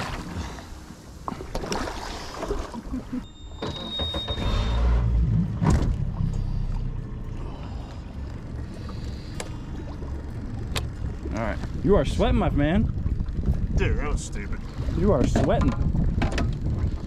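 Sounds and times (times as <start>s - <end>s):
water splashing at hull: 0.0s - 3.2s, 5.1s - 17.0s
low rumble: 4.3s - 17.0s.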